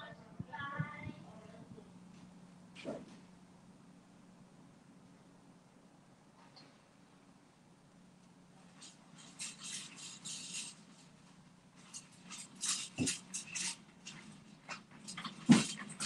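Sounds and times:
objects clattering and clicking: 8.7s - 11.1s, 11.8s - 16.0s.

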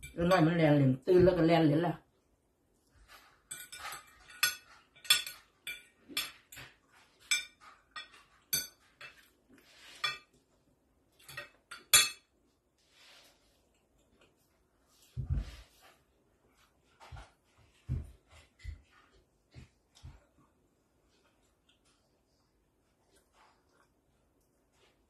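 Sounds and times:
cutlery clinking on a plate: 3.1s - 10.4s, 11.2s - 12.3s.

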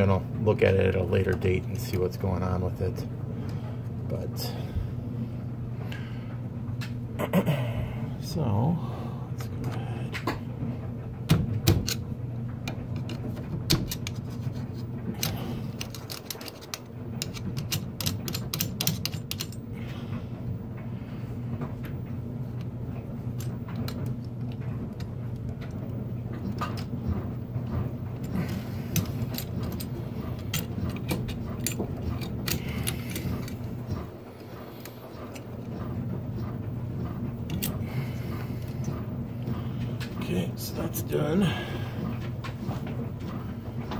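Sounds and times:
washer and dryer humming: 0.0s - 43.9s
metallic clicks and rattles: 15.2s - 19.6s, 26.4s - 35.9s.

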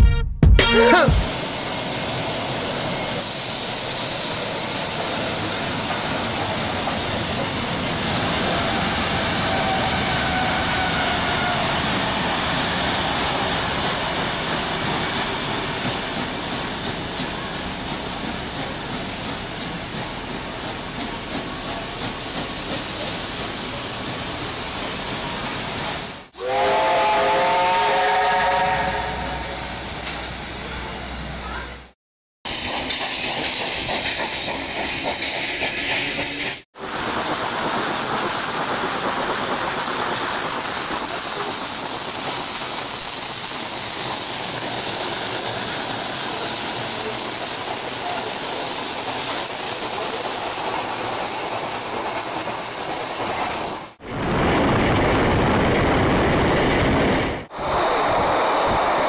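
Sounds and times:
steam hissing: 1.1s - 31.7s, 32.5s - 54.0s, 57.0s - 59.0s
train rolling over rails: 1.3s - 31.9s, 32.5s - 59.0s
steam whistle chord: 26.4s - 30.2s.

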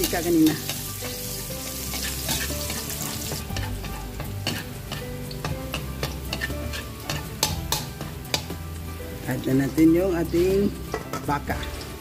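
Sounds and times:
garlic sizzling in oil: 0.0s - 12.0s
metal ladle scraping and tapping pan: 1.8s - 8.6s.

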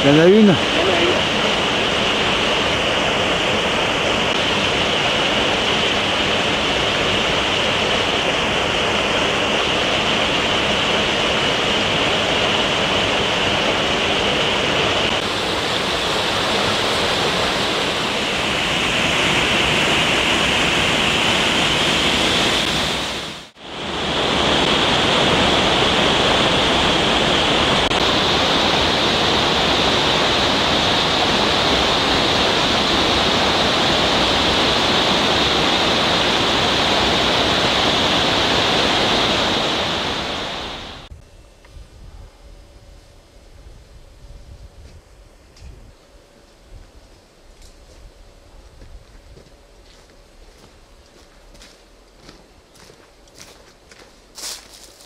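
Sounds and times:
waterfall and stream rushing: 0.0s - 41.1s.

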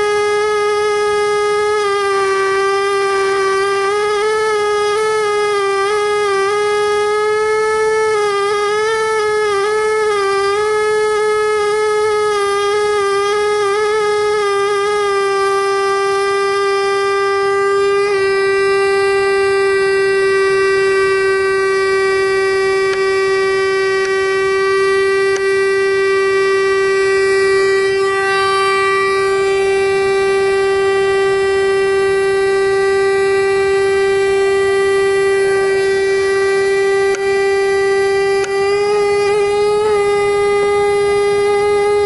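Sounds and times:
pneumatic air scribe buzzing: 0.0s - 42.0s.

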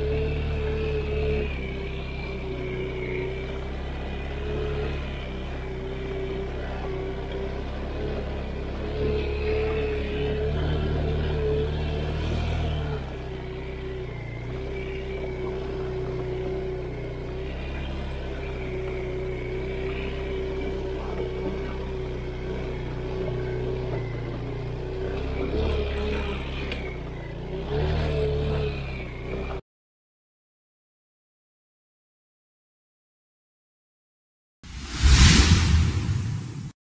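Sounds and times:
motorcycle engine running: 0.0s - 29.6s
steady whine: 34.7s - 36.8s.

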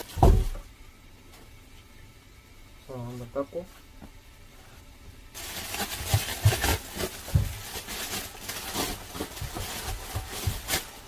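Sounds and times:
light knocks and thumps: 0.2s - 0.7s, 6.0s - 7.7s
rustling: 4.5s - 11.0s.

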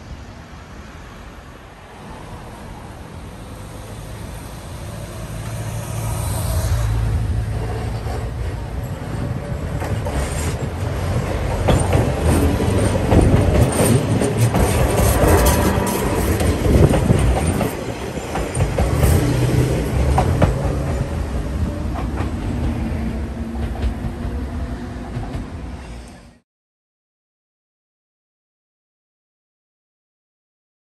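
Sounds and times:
electric train passing: 0.0s - 26.4s
train wheels clacking over joints: 7.5s - 24.4s.

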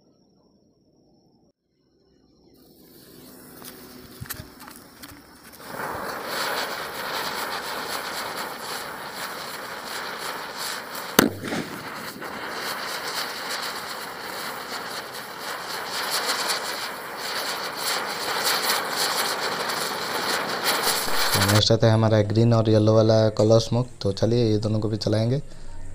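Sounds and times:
spinning firework hissing: 2.6s - 22.5s
small crackles: 3.6s - 21.6s
loud bang: 11.2s - 14.5s.

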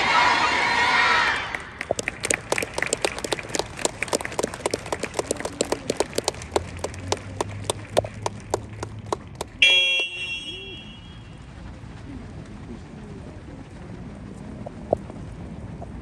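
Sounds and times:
small group applauding: 1.5s - 10.1s.

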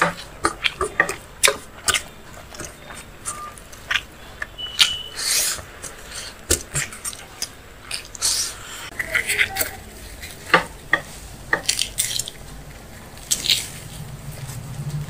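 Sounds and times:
chewing: 0.0s - 15.0s
fingers working food on steel plate: 0.0s - 15.0s.

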